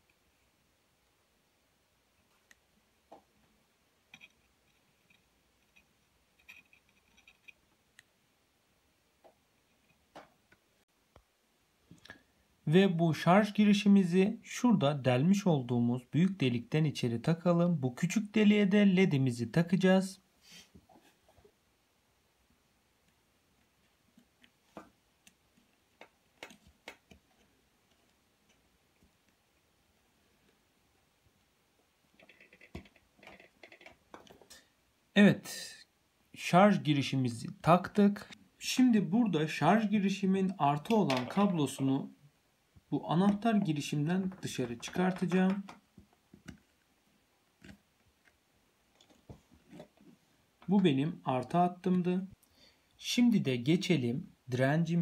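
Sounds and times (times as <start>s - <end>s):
faint clicks of small parts: 4.1s - 8.1s, 23.0s - 29.7s, 32.1s - 34.7s
faint sharp clicks and taps: 23.0s - 29.4s, 42.8s - 46.8s.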